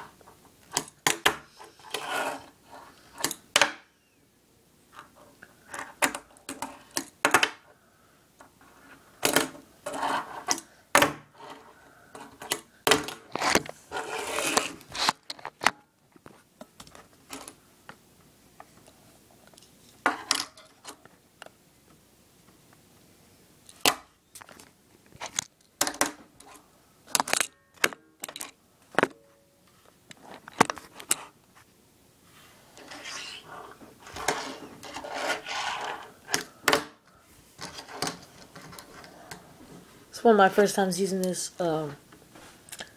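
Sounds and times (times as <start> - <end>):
small wheels rolling on wood: 13.3 - 15.1.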